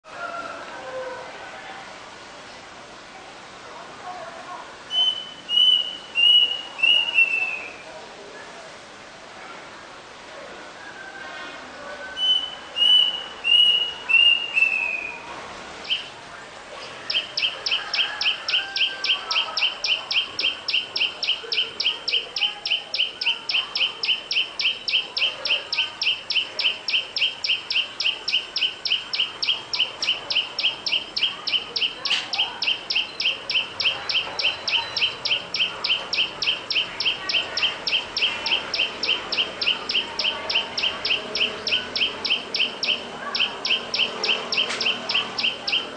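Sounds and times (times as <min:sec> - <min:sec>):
sharp chirps: 0:17.1 - 0:45.9.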